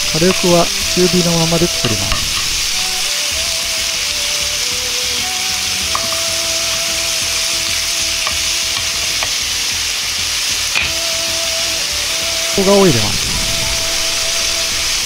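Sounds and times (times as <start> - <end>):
meat sizzling in frying pan: 0.0 - 15.0
chopsticks tapping pan: 0.2 - 3.1, 5.8 - 9.6, 10.7 - 11.0.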